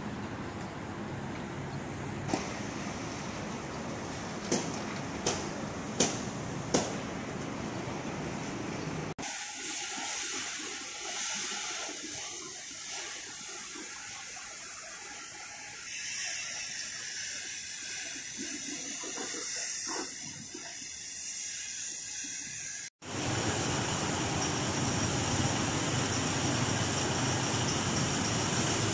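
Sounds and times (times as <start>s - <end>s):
water spraying from hose: 9.2s - 28.9s.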